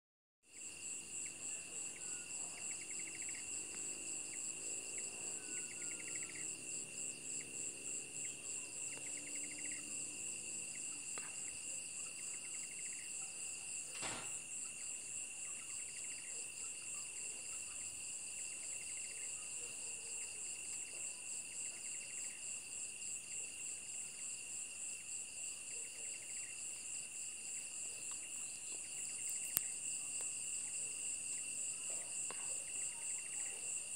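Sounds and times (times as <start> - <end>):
insect chirping: 0.5 - 33.9
crickets trilling: 0.6 - 20.6.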